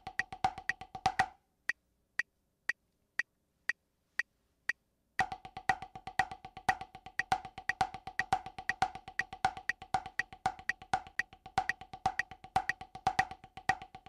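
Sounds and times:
drumsticks on a practice pad: 0.0 - 1.4, 5.2 - 14.0
metronome clicking: 0.0 - 1.8, 5.2 - 14.0.

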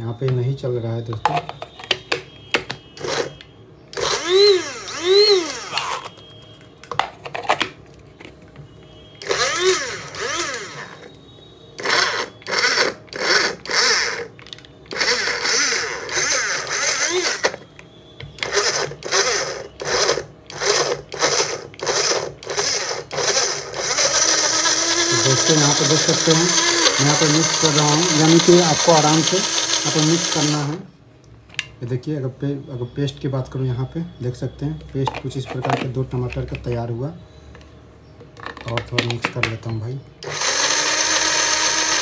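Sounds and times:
electric spice grinder whirring: 3.0 - 6.1, 9.2 - 11.1, 11.8 - 17.6, 18.4 - 30.8, 40.2 - 42.0.

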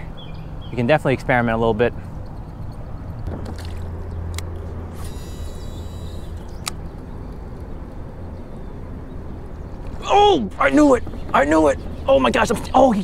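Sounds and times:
fishing reel clicks: 4.3 - 6.8
wind rumbling on microphone: 6.4 - 13.0.

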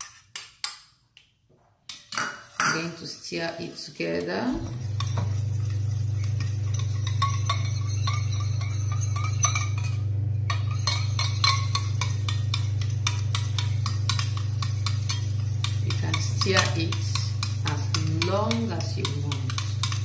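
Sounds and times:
spatula scraping metal pot: 1.9 - 20.0
steady low hum: 4.5 - 20.0.

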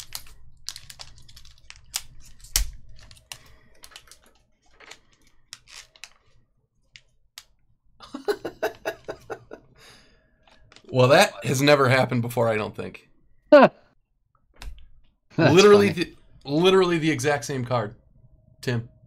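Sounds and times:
foil pack crinkling: 0.0 - 6.4.

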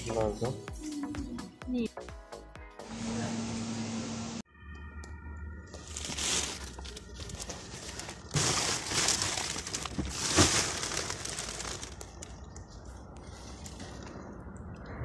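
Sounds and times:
plastic bags rustling: 5.8 - 14.1.

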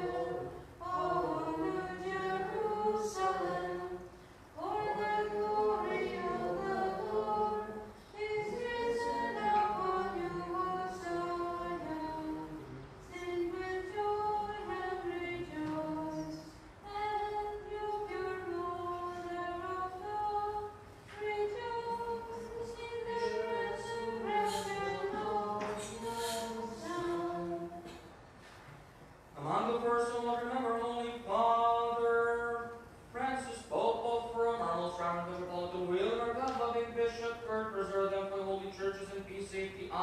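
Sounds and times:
voices singing unaccompanied chant: 0.0 - 28.0.

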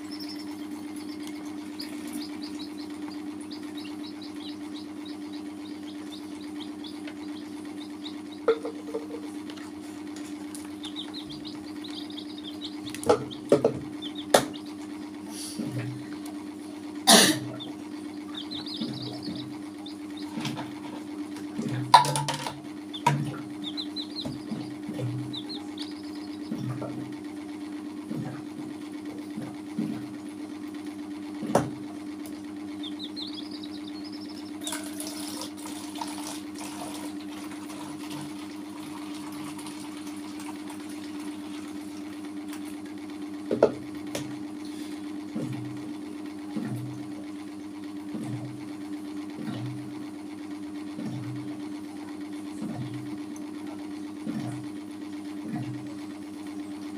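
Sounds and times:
chicks peeping: 0.0 - 16.7, 17.4 - 35.6
steady low hum: 0.0 - 56.9.

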